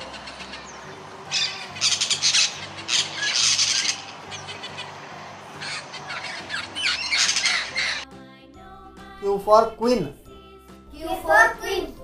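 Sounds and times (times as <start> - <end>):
parrot squawking: 0.0 - 8.0
soft background music: 0.0 - 12.0.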